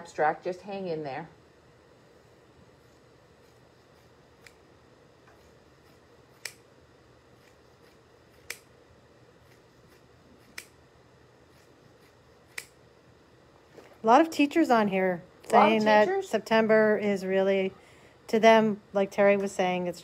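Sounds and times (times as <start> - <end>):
scissors snipping cloth: 5.4 - 6.7, 7.4 - 8.7, 9.4 - 10.8, 11.6 - 12.8.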